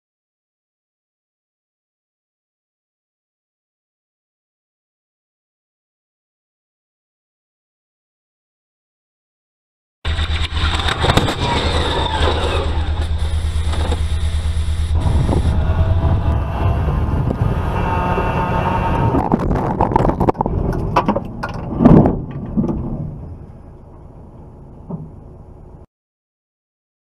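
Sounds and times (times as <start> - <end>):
loud car crash: 10.1 - 13.1
road and wind noise in car: 10.1 - 25.9.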